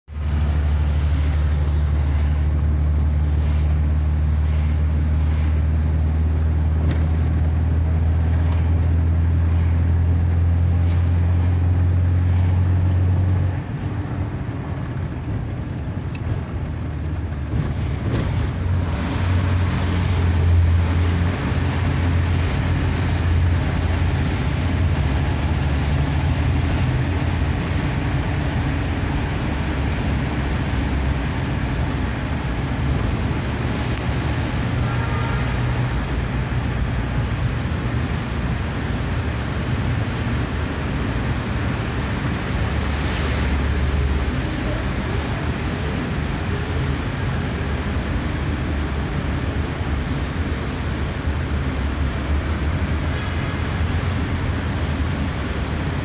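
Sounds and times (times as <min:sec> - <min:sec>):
tyres and traffic rushing: 0:00.0 - 0:56.0
vehicle engine hum: 0:00.0 - 0:56.0.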